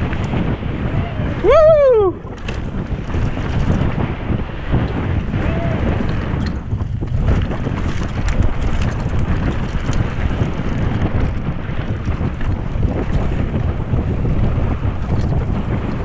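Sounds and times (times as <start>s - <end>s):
bike clicks and rattles: 0.0s - 0.7s, 2.1s - 16.0s
wind rushing over microphone: 0.0s - 16.0s
tyres on gravel trail: 2.2s - 16.0s.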